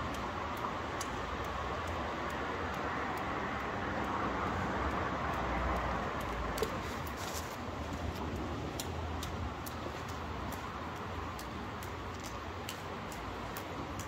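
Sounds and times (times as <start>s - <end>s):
distant traffic hum: 0.0s - 14.0s.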